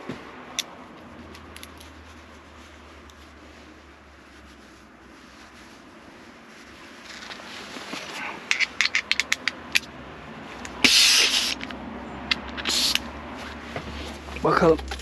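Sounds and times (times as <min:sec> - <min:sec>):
small metal parts clicking: 0:08.5 - 0:09.9
compressed air hissing: 0:10.6 - 0:11.8, 0:12.4 - 0:13.1.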